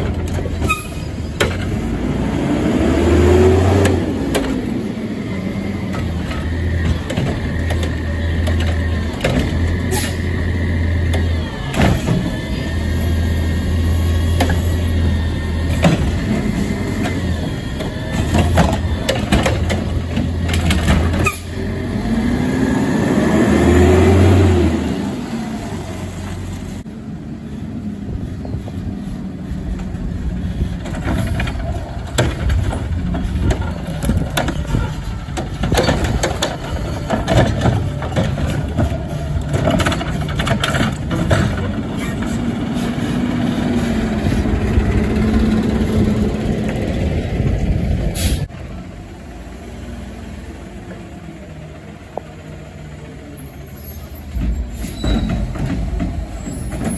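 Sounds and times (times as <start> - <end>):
clanks and bangs of cart dumping: 0.0 - 2.0, 3.6 - 12.8, 13.8 - 22.1, 30.6 - 45.2, 54.0 - 56.9
garbage truck engine and hydraulics: 0.0 - 56.9.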